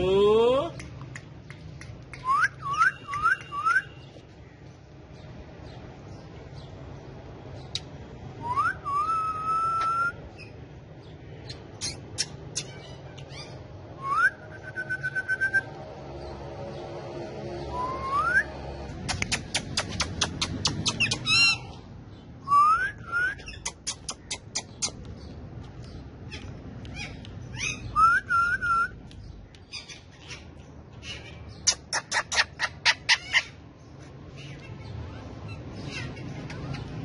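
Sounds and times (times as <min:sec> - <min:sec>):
parakeets squawking: 0:11.4 - 0:13.7, 0:19.0 - 0:21.8, 0:23.4 - 0:28.1, 0:29.6 - 0:37.0
rising whistles: 0:14.0 - 0:15.7, 0:17.7 - 0:18.6.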